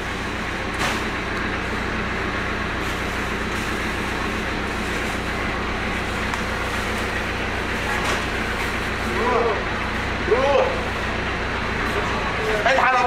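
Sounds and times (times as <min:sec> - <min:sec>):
small cart engine idling: 0:00.0 - 0:13.0
rubbish bag thumping into cart: 0:00.8 - 0:01.2.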